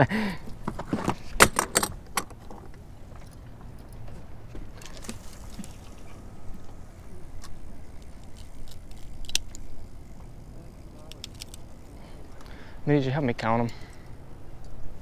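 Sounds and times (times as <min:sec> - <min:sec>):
fishing pliers and tackle clicking: 0:07.4 - 0:09.7, 0:11.0 - 0:11.7.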